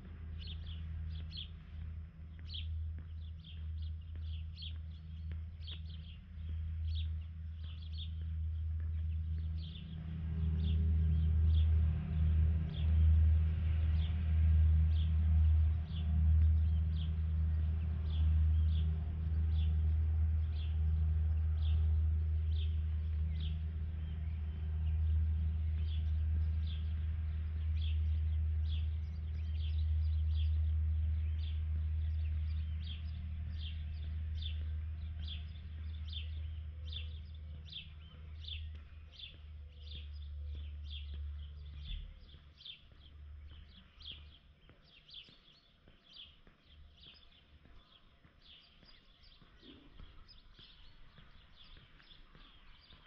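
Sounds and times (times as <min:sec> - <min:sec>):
bird chirping: 0:00.0 - 0:53.0
steady low rumble: 0:00.0 - 0:53.0.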